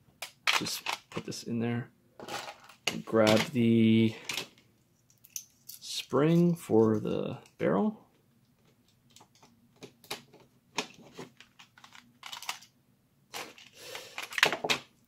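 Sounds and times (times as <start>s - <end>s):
plastic toy parts clicking and scraping: 0.2s - 1.2s, 4.2s - 7.6s, 8.6s - 12.7s, 13.3s - 14.8s.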